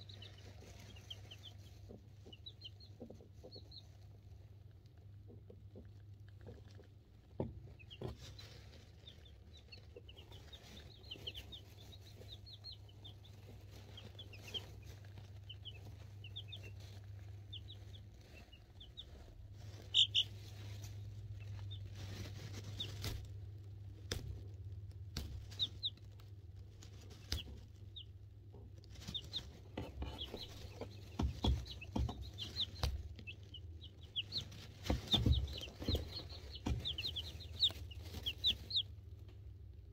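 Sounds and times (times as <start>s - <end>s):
chicks peeping: 0.0s - 39.9s
knocks and scuffs in shavings: 6.4s - 27.9s, 28.8s - 39.0s.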